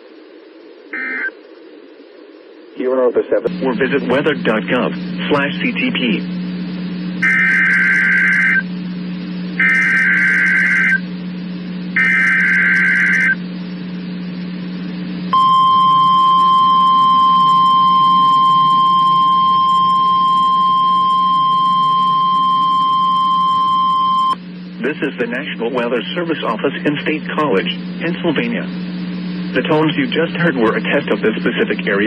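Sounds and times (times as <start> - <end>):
steady warning alarm tone: 0.9 - 1.3, 7.2 - 8.7, 9.6 - 11.1, 11.9 - 13.4, 15.2 - 24.7
screeching data bursts: 0.9 - 1.4, 7.2 - 8.7, 9.6 - 11.0, 12.0 - 13.4, 15.4 - 24.4
low hum: 3.4 - 31.9.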